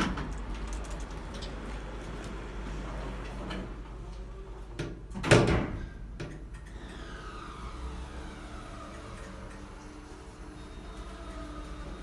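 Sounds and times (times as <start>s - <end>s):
loud thud of doors meeting: 5.2s - 5.9s
glass sliding doors closing: 6.7s - 12.0s.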